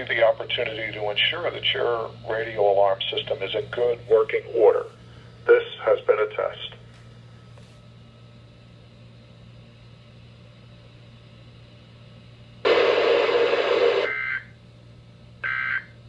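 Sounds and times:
radio receiver hum and hiss: 0.0s - 7.8s, 12.6s - 14.6s
burst of static noise: 12.6s - 14.2s
shrill data burst: 12.7s - 14.4s.

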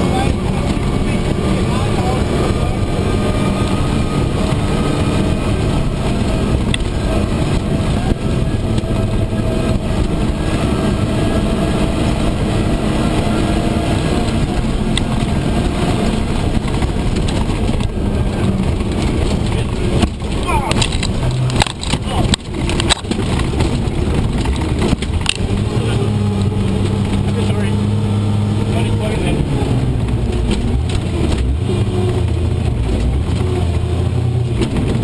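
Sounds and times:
vehicle engine and drivetrain noise: 0.0s - 35.0s.

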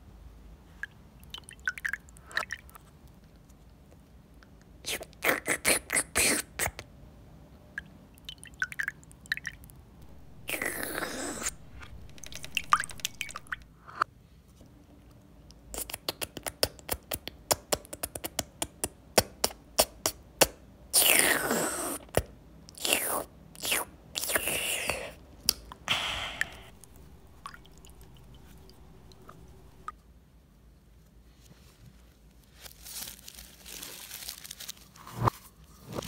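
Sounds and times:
quick wet clicks: 10.4s - 13.7s.

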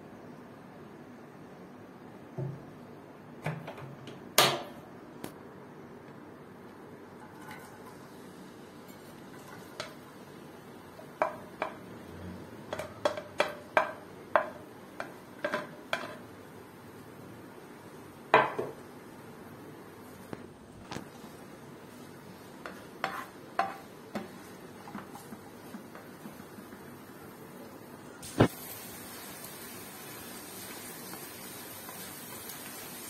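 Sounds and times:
steady low hiss: 0.0s - 33.0s.

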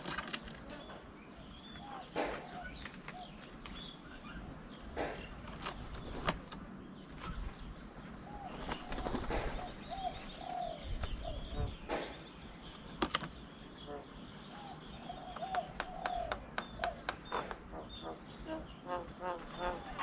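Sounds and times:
wing flutters: 4.9s - 11.1s
bird call notes: 8.3s - 20.0s.

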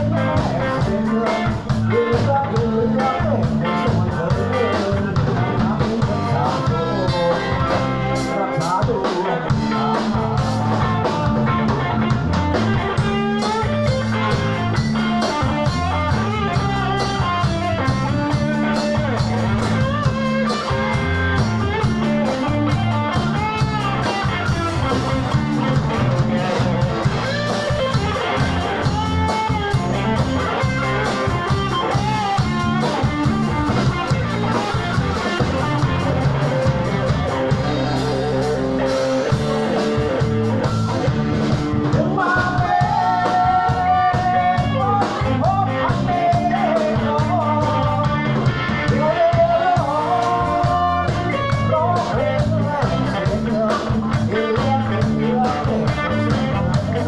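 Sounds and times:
man singing into microphone: 0.0s - 12.0s, 41.8s - 57.0s
bass guitar: 0.0s - 57.0s
drum kit: 0.0s - 57.0s
electric guitars: 0.0s - 57.0s.

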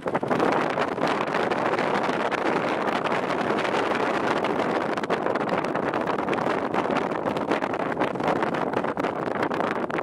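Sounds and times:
rush of wind and water: 0.0s - 10.0s
wind buffeting microphone: 0.0s - 10.0s.

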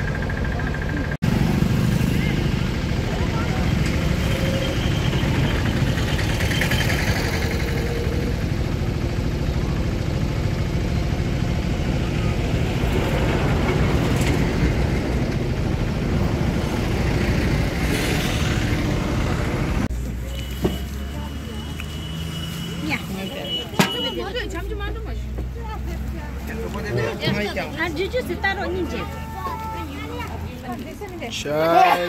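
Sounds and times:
vehicle engine rumble: 0.0s - 31.8s
road noise: 0.0s - 32.0s.

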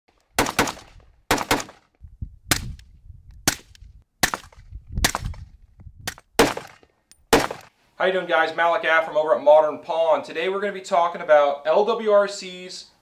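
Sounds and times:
rifle shots: 0.4s - 1.8s, 3.5s - 5.3s, 6.1s - 7.7s.

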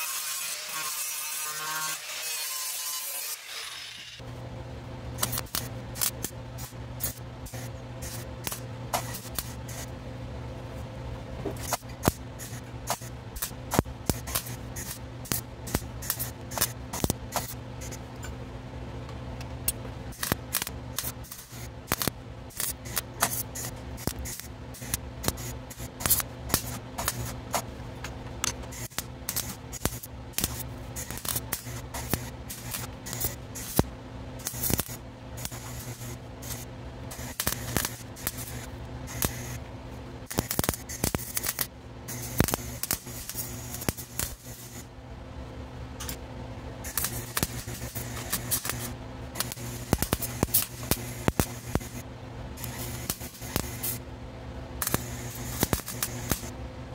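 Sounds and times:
welding arc crackling: 5.2s - 9.9s, 11.6s - 18.0s, 20.1s - 27.7s, 28.4s - 44.9s, 46.8s - 54.0s, 54.8s - 56.5s.

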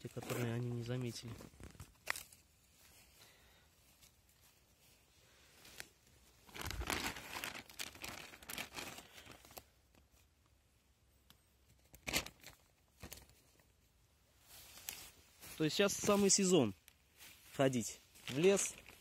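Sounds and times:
plastic bag crinkling: 6.4s - 9.6s, 18.2s - 19.0s.

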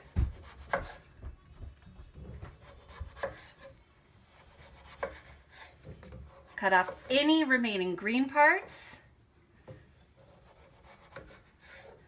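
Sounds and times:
knife scraping through melon rind: 10.1s - 12.0s.

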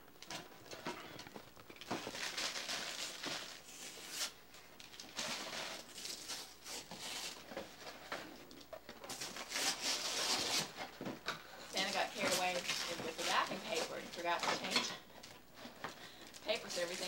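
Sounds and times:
wrapping paper rustling and tearing: 1.7s - 8.1s, 9.0s - 10.9s, 11.6s - 15.0s, 15.6s - 17.0s.

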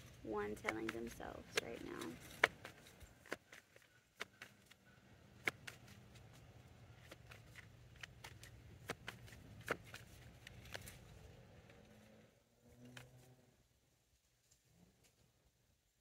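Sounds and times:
cards snapping and tapping: 0.5s - 11.0s.

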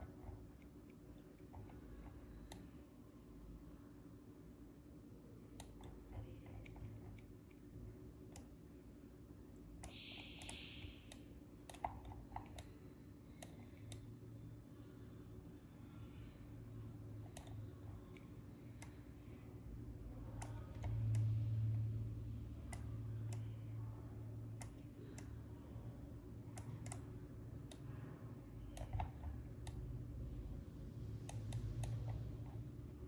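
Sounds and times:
steady low hum: 0.0s - 33.0s
computer mouse and keyboard clicks: 5.6s - 7.6s, 9.8s - 12.8s, 26.5s - 27.9s, 28.6s - 29.8s.

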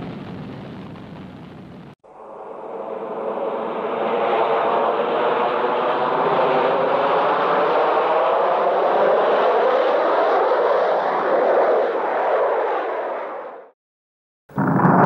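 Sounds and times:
aircraft engines droning: 2.0s - 13.7s.

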